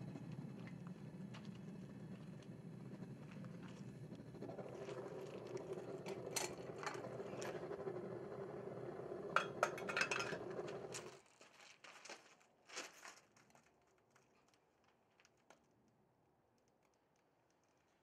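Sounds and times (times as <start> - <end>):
furnace burner roaring: 0.0 - 11.2
metal tongs clinking on crucible: 9.4 - 10.5.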